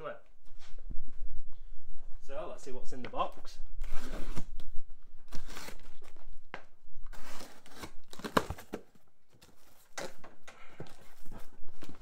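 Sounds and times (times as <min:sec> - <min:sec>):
tape tearing: 0:03.8 - 0:04.6, 0:05.3 - 0:06.2, 0:07.0 - 0:10.3.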